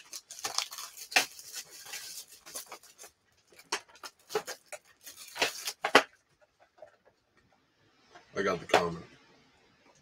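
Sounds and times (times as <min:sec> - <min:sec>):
packaging crinkling and rustling: 0:00.0 - 0:07.1.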